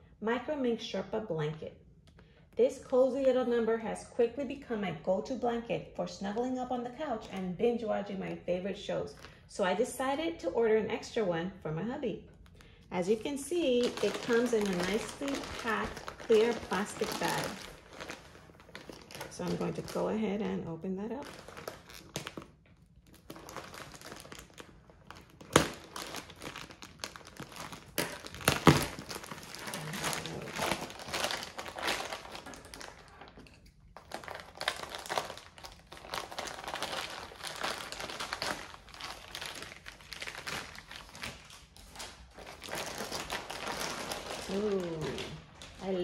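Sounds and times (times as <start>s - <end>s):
plastic bag crinkling and rustling: 12.5s - 46.0s
sharp plastic cracks: 21.4s - 38.7s.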